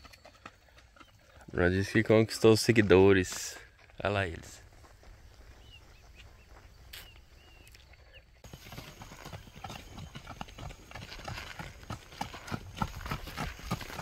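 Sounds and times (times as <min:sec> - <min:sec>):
horse hooves clip-clopping on road: 0:00.0 - 0:04.1, 0:08.4 - 0:14.0.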